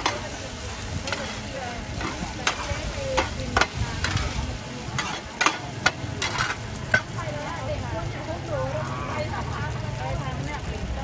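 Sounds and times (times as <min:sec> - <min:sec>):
metal spatulas clacking on wok: 0:00.0 - 0:07.3
food sizzling in oil: 0:00.0 - 0:11.0.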